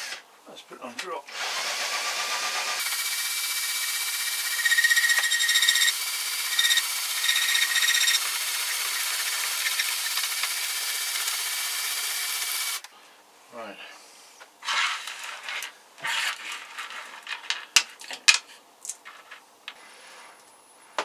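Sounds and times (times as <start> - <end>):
power tool running: 1.3 - 12.9
high squeal of rubbing: 4.2 - 10.2.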